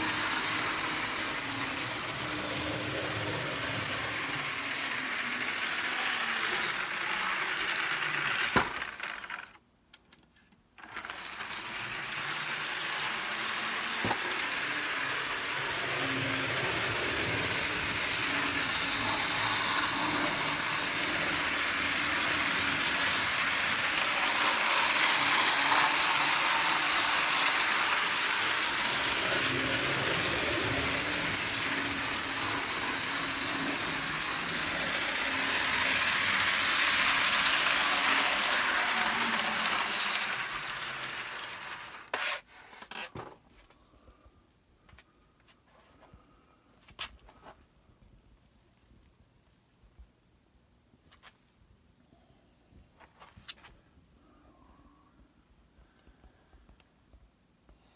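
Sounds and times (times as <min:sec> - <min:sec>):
model train motor whirring: 0:00.0 - 0:09.6, 0:10.8 - 0:43.1.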